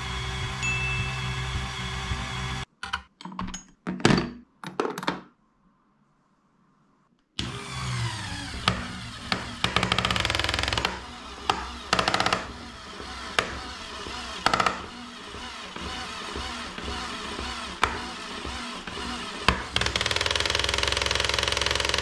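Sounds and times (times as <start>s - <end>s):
electric motor driving gears: 0.0s - 2.7s, 7.4s - 22.0s.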